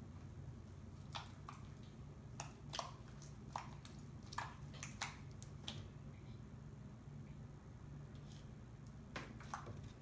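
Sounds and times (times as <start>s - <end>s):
slime squelching wet pops: 1.0s - 6.0s.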